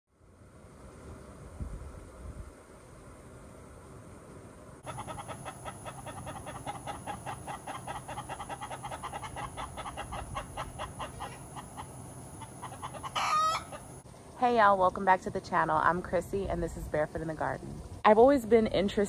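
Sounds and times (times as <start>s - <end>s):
chicken clucking: 4.8s - 14.0s.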